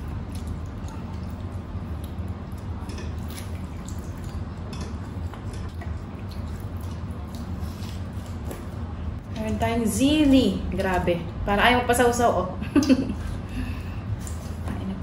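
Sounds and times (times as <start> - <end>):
broth dripping and pouring: 0.0 - 8.4
steady low hum: 0.0 - 15.0.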